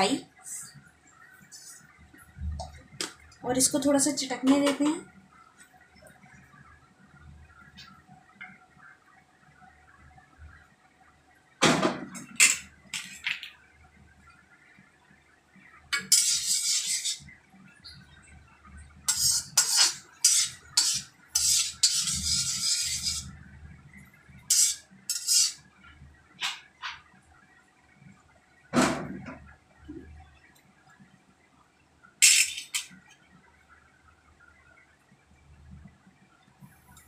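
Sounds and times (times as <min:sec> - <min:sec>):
metal spoon scraping iron pan: 0:16.0 - 0:17.2, 0:19.1 - 0:23.3, 0:24.5 - 0:25.6.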